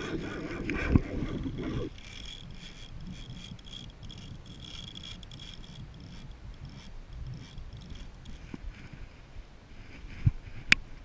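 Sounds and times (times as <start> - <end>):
fishing reel drag clicking: 0.0 - 8.6
wind on microphone: 0.0 - 11.0.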